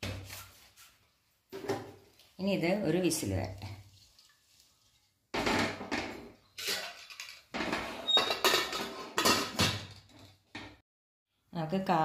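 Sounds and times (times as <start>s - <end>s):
metal lid clattering and scraping: 6.6s - 9.8s.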